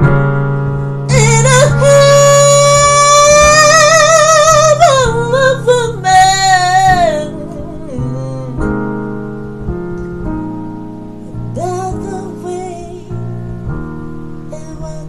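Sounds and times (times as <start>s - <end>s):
electronic keyboard chords: 0.0s - 15.0s
woman singing with vibrato: 1.1s - 8.9s, 11.3s - 13.7s, 14.5s - 15.0s.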